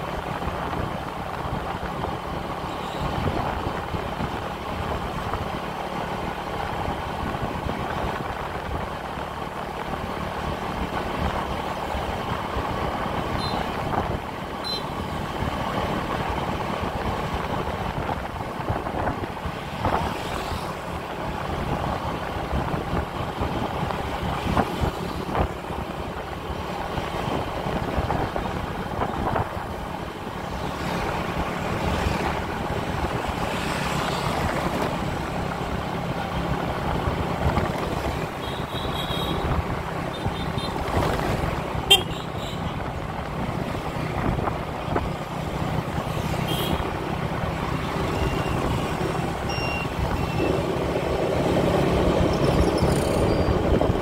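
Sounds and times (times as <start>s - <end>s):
motorbike engine and road noise: 0.0s - 54.0s
horn toots: 41.9s - 42.7s.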